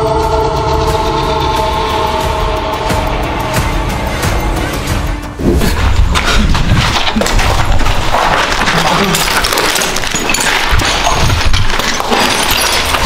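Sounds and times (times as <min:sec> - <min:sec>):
footsteps on gritty concrete stairs: 0:05.4 - 0:13.0.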